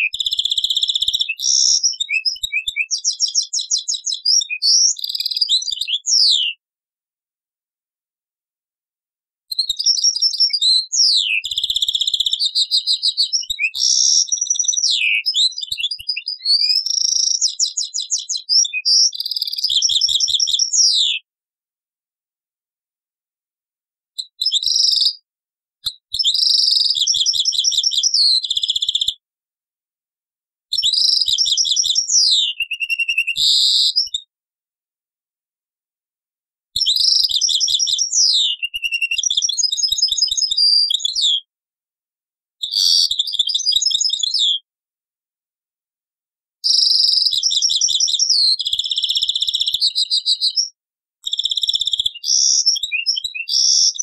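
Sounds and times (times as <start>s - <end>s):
finch singing: 0.0s - 6.6s, 9.5s - 21.2s, 24.2s - 25.2s, 26.1s - 29.1s, 30.7s - 34.2s, 36.8s - 41.4s, 46.6s - 54.0s.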